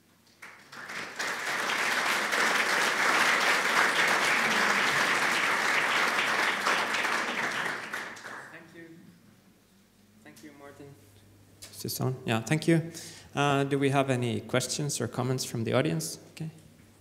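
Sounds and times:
audience applauding: 0:00.3 - 0:08.6.

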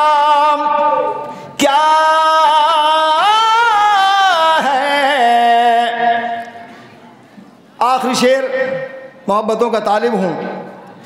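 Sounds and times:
man singing unaccompanied: 0:00.0 - 0:06.5.

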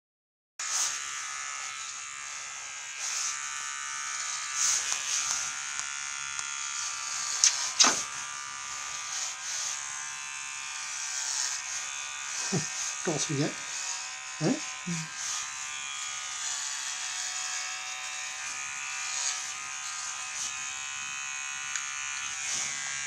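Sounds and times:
electric hair clipper buzzing: 0:00.6 - 0:23.0
brief sharp sounds: 0:07.4 - 0:08.1.

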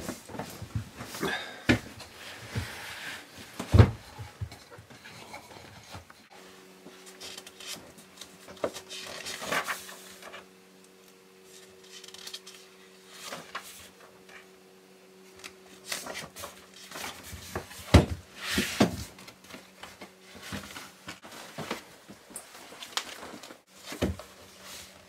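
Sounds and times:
faint steady hum: 0:00.0 - 0:25.0
papers scraping and shuffling: 0:06.9 - 0:10.5, 0:11.5 - 0:14.4, 0:15.3 - 0:25.0.

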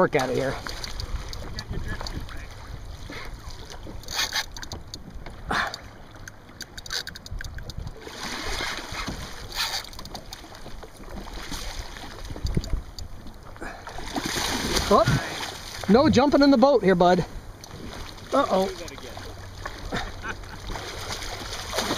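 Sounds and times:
water splashing against kayak hull: 0:00.0 - 0:21.9
wind rumble on microphone: 0:00.5 - 0:03.0, 0:07.2 - 0:09.4, 0:11.5 - 0:13.3.

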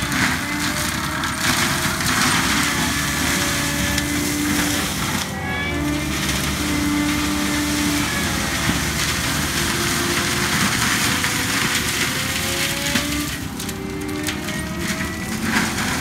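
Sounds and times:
engine drone: 0:00.0 - 0:16.0
mulching head shredding brush: 0:00.0 - 0:16.0.

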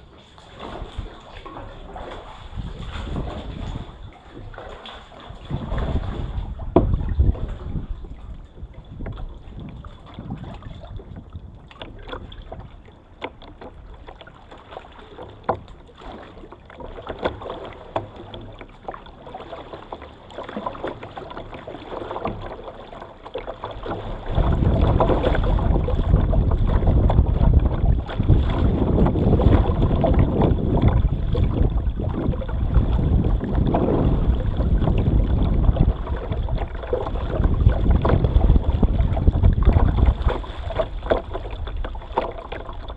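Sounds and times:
wind buffeting microphone: 0:00.0 - 0:04.5, 0:05.2 - 0:12.8, 0:23.8 - 0:42.9
water splashing against kayak hull: 0:00.0 - 0:42.9.

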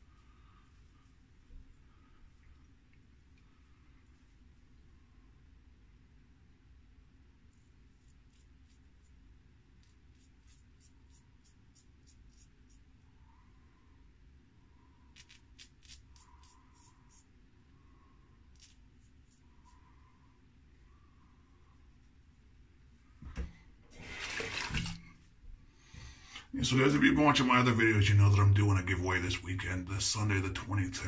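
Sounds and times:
razor scraping stubble: 0:09.8 - 0:12.9, 0:15.1 - 0:17.3.

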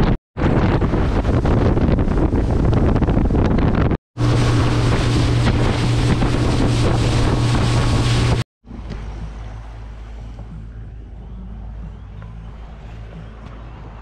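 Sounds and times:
wind buffeting microphone: 0:00.0 - 0:14.0
boat motor running: 0:00.7 - 0:14.0
water rushing: 0:04.2 - 0:14.0.

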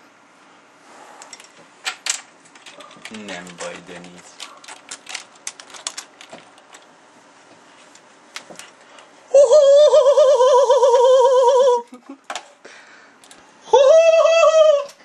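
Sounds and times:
clicks and handling noises: 0:01.3 - 0:09.1
man humming wavering tone: 0:09.3 - 0:12.0, 0:13.7 - 0:15.0.

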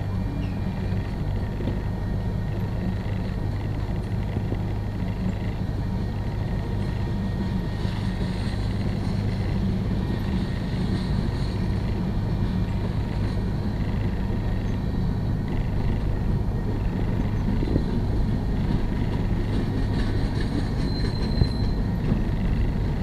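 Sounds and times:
train wheels rumbling on rail: 0:00.0 - 0:23.0.

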